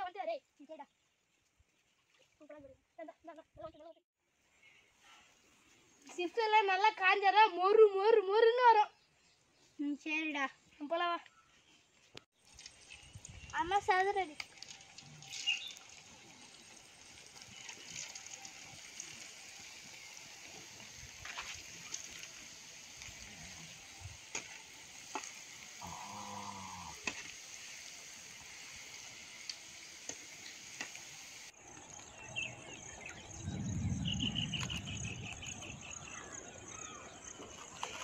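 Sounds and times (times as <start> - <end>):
potatoes sizzling in hot oil: 12.4 - 31.6
loud low sound: 33.4 - 35.8.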